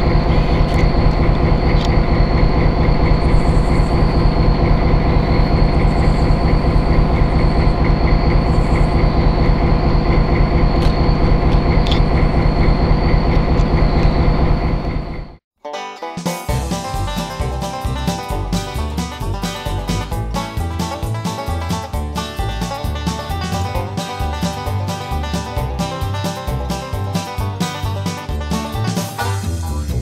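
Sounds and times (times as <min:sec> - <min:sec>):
diesel locomotive engines rumbling: 0:00.0 - 0:15.4, 0:16.5 - 0:30.0
high whine: 0:00.0 - 0:15.4.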